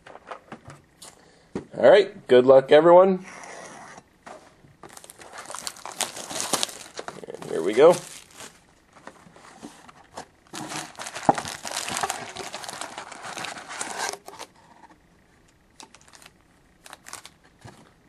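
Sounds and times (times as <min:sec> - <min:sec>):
card packs crinkling and rustling: 0:04.8 - 0:14.6, 0:15.8 - 0:18.0.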